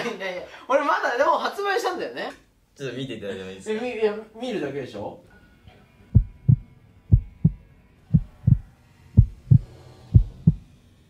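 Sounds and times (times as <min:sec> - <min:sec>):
heartbeat thumps: 0:06.1 - 0:10.7.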